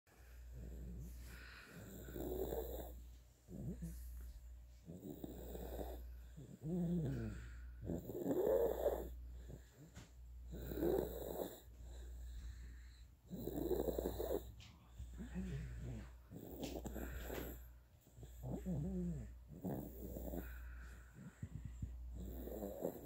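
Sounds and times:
baby snoring: 0:00.6 - 0:04.2, 0:04.8 - 0:09.9, 0:10.5 - 0:12.4, 0:13.2 - 0:14.6, 0:15.2 - 0:23.0.

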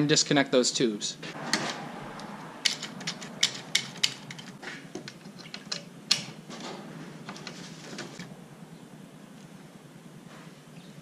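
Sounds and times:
metal clicks and taps: 0:02.6 - 0:06.3.

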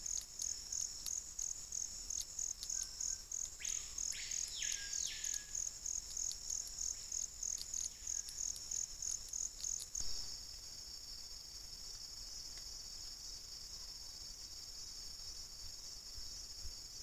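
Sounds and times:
short rasping insect calls: 0:00.0 - 0:10.4
continuous high insect trill: 0:00.0 - 0:17.0
insects chirping in a pulse: 0:00.0 - 0:17.0.

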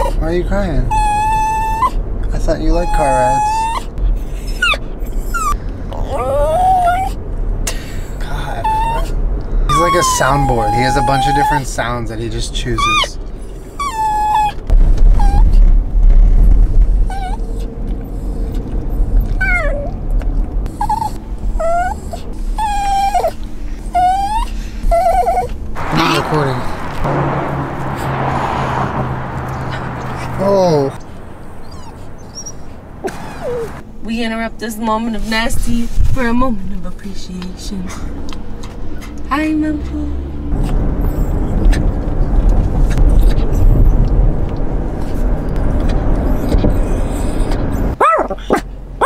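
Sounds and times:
dog whining: 0:00.0 - 0:00.2, 0:00.8 - 0:02.0, 0:02.6 - 0:07.2, 0:08.5 - 0:11.7, 0:12.8 - 0:15.6, 0:17.0 - 0:18.6, 0:19.2 - 0:20.0, 0:20.7 - 0:26.2, 0:31.5 - 0:33.8, 0:45.8 - 0:48.6
car rumble: 0:00.0 - 0:49.0.

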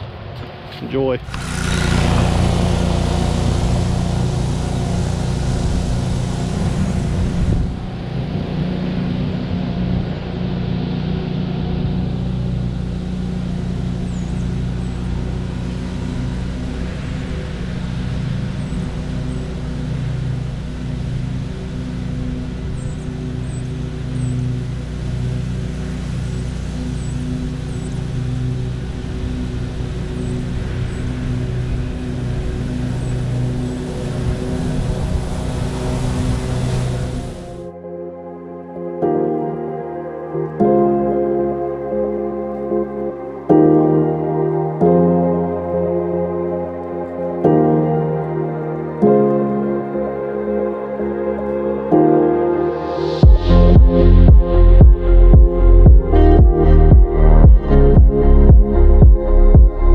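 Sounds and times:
mower engine running: 0:00.9 - 0:37.7.

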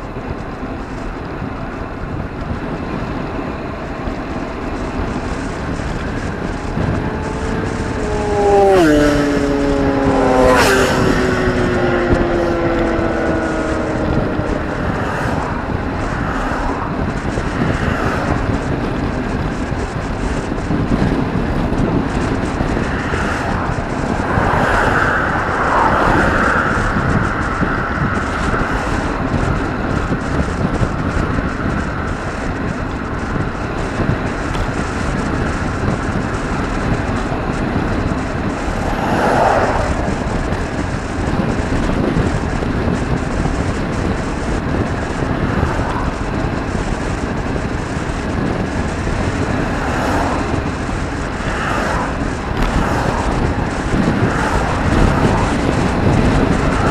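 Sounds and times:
motor vehicles passing: 0:00.0 - 0:56.9
wind rushing over microphone: 0:00.0 - 0:56.9.

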